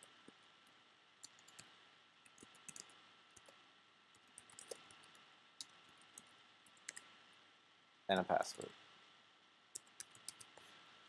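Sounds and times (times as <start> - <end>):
low hiss: 0.0 - 11.0
keyboard typing: 1.2 - 7.1, 9.7 - 10.7.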